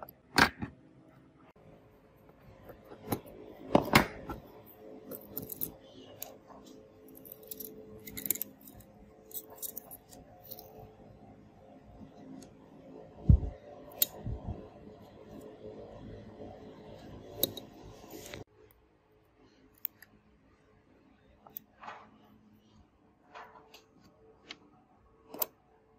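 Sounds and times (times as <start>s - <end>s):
tools clicking and scraping on phone: 2.2s - 11.0s, 17.0s - 18.5s.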